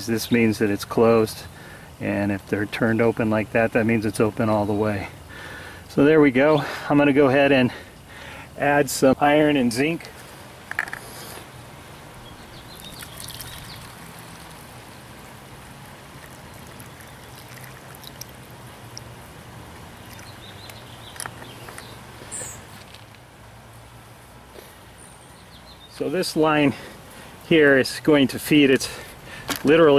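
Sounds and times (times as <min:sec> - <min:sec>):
liquid pouring through a funnel: 0:12.7 - 0:21.3.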